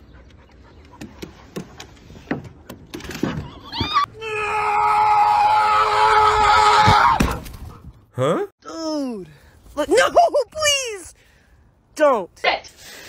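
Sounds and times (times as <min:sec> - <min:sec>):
long shrill cry: 0:03.7 - 0:07.2.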